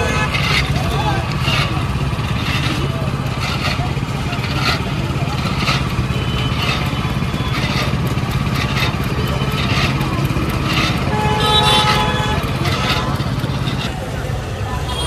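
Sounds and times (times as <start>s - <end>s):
juice crusher engine drone: 0.0s - 15.0s
rollers rasping: 0.0s - 15.0s.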